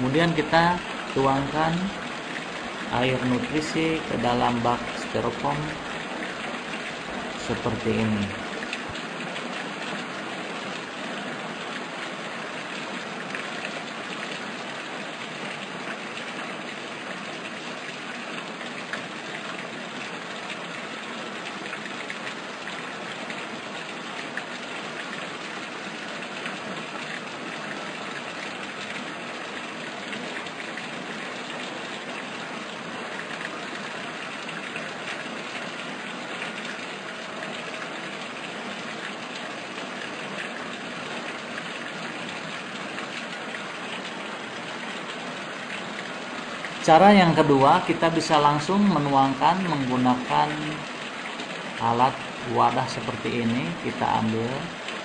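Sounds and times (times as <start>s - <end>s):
running water pouring: 0.0s - 55.0s.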